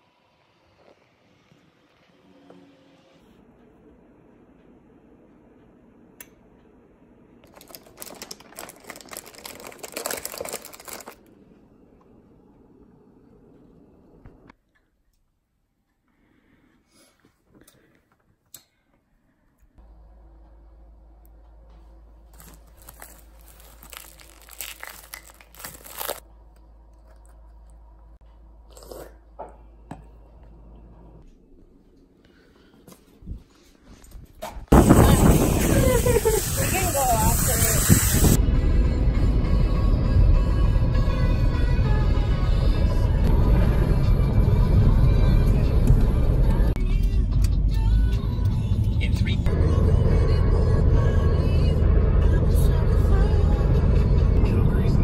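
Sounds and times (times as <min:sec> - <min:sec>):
plastic wrapper crinkling: 0:07.5 - 0:11.2, 0:22.4 - 0:26.3.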